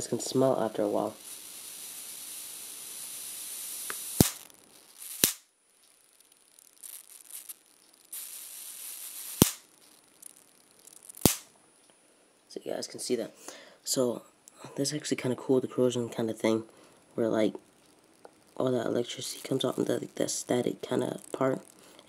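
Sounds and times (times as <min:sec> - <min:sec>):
high-voltage hiss: 0:00.0 - 0:11.6, 0:14.8 - 0:22.0
electric spark snaps: 0:00.2 - 0:11.6, 0:17.6 - 0:22.0.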